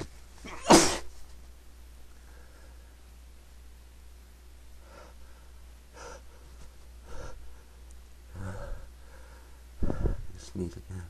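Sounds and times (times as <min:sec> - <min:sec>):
loud sneeze: 0:00.4 - 0:01.1
man gasping: 0:08.3 - 0:10.4.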